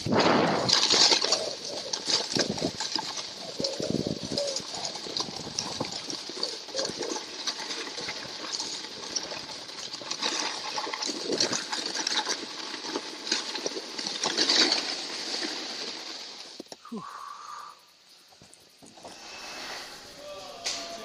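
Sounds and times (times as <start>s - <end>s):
skis sliding on packed snow: 0.0s - 16.7s.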